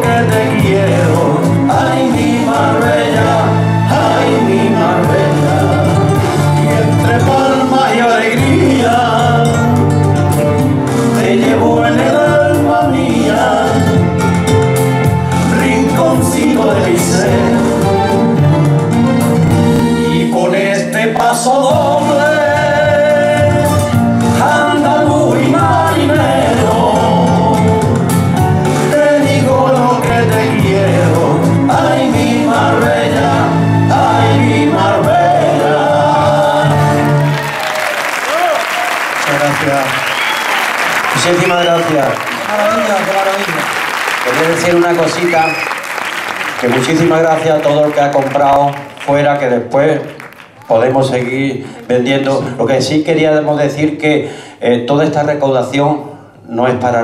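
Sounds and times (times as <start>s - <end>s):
two men singing a duet: 0.0s - 10.1s, 10.8s - 14.4s, 15.2s - 18.3s, 19.8s - 37.4s
backing music with bass line: 0.0s - 37.8s
instrumental accompaniment: 0.0s - 38.3s.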